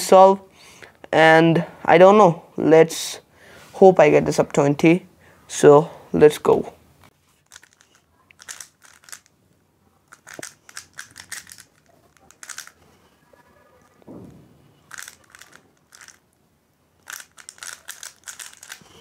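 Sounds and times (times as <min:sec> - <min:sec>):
puzzle cube layers clicking: 0:07.5 - 0:09.3, 0:10.1 - 0:12.8, 0:14.9 - 0:16.2, 0:17.0 - 0:19.0.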